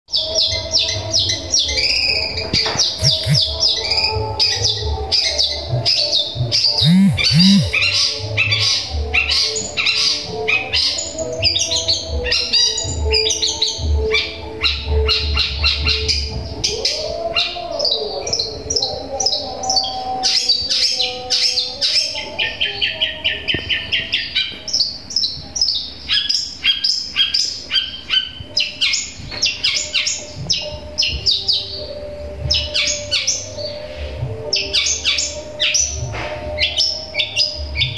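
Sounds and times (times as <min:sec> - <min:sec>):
shrike singing rapid chirps: 0:03.0 - 0:04.2, 0:06.6 - 0:08.1.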